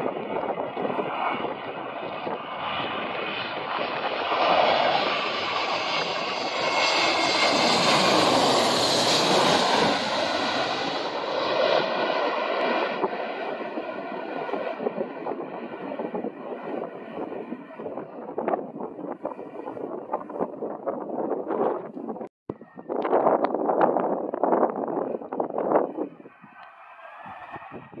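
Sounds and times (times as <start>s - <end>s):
high engine whine: 0.0s - 18.3s
jet airliner passing overhead: 0.0s - 28.0s.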